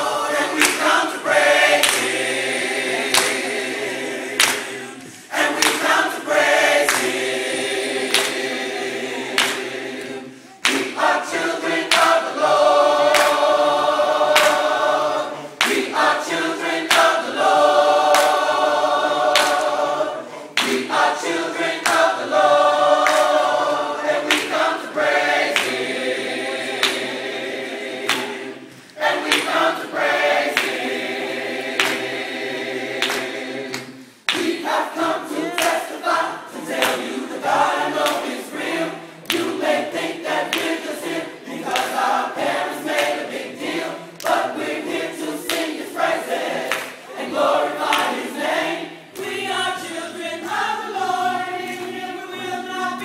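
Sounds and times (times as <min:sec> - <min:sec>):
choir singing in harmony: 0:00.0 - 0:53.0
hand claps: 0:00.3 - 0:53.0.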